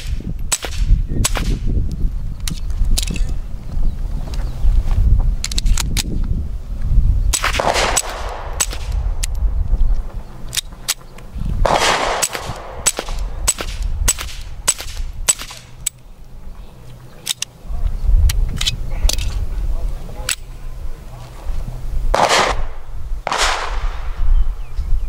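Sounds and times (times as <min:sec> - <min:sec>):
suppressed pistol shots: 0:07.3 - 0:09.3, 0:11.6 - 0:15.8, 0:22.1 - 0:24.2.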